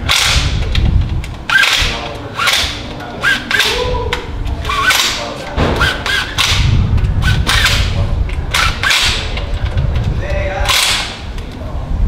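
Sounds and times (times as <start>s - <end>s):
impact wrench bursts: 0.0s - 0.6s, 1.5s - 3.9s, 4.5s - 9.4s, 10.6s - 11.2s.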